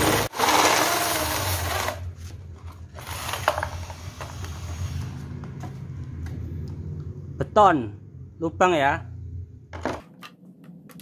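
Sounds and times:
drill grinding into concrete: 0:00.0 - 0:02.0.

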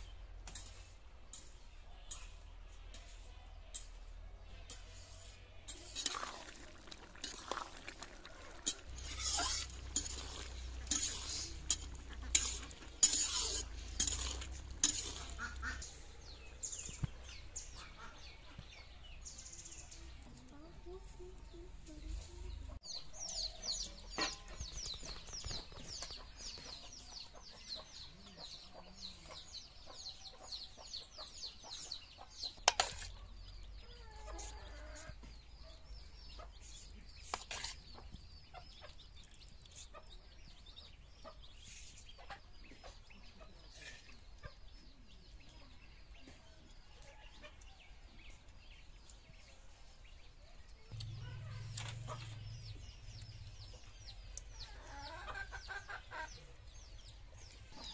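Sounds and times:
chickens clucking: 0:04.2 - 0:19.4, 0:20.0 - 0:57.9
chicks peeping: 0:06.9 - 0:57.9
ladle clinking on metal plates: 0:08.5 - 0:15.6.

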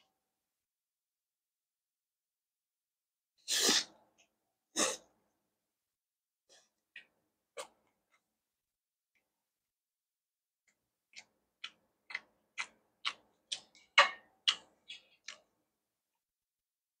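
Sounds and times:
chewing crisp food: 0:10.6 - 0:15.6.

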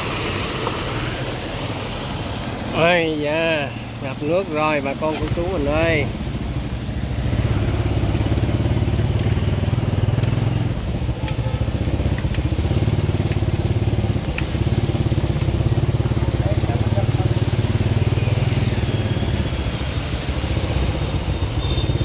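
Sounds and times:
motorbike engine running: 0:06.6 - 0:19.4.

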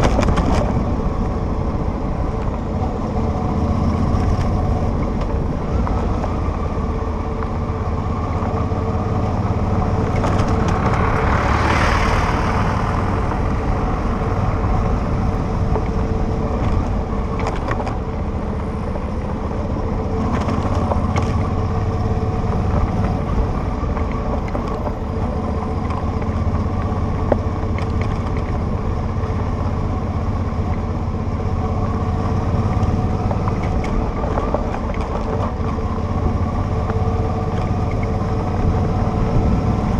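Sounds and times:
wind rush: 0:00.0 - 0:25.4
gravel clicks from road: 0:00.0 - 0:39.9
motorcycle engine running: 0:00.0 - 0:39.9.

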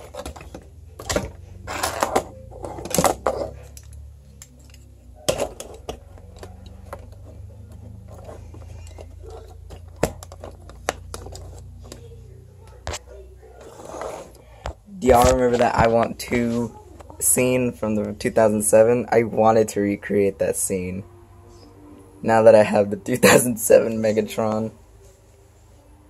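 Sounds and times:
plastic toys clicking and clattering: 0:00.0 - 0:12.2
low steady hum: 0:00.0 - 0:26.0.

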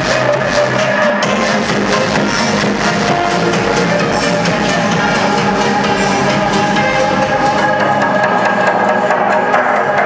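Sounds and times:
electronic dance music from car speakers: 0:00.0 - 0:10.0.

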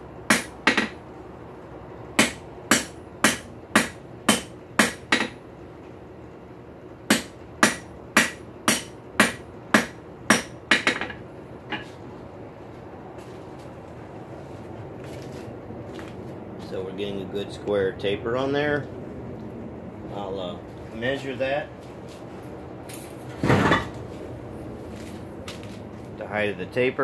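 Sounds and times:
hammer striking steel on anvil: 0:00.3 - 0:01.0, 0:02.2 - 0:05.4, 0:07.1 - 0:11.9.

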